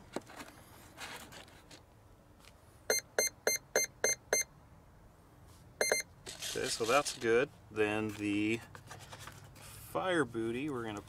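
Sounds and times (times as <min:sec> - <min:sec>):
short electronic beeps: 0:02.9 - 0:04.5, 0:05.8 - 0:06.1.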